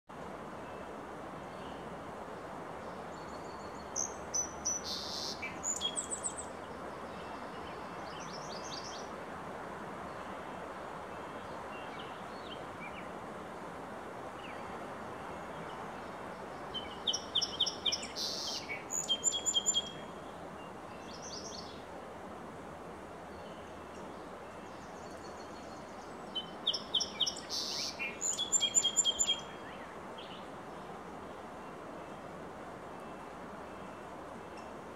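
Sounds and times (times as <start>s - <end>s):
steady background hiss: 0.1s - 34.9s
sparrow singing: 4.0s - 6.4s, 16.8s - 20.0s, 26.4s - 29.6s.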